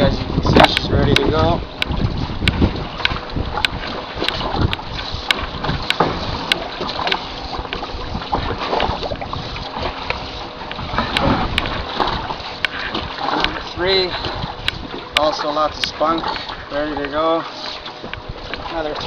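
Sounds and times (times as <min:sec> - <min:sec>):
waves lapping against boat: 0:00.0 - 0:19.0
wind buffeting microphone: 0:00.0 - 0:19.0.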